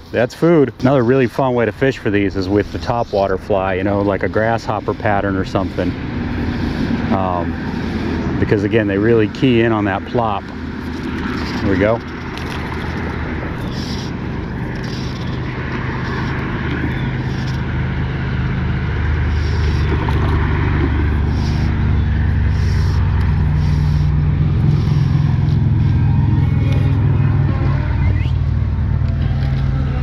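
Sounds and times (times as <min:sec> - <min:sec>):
vehicle engine running: 0:00.0 - 0:30.0.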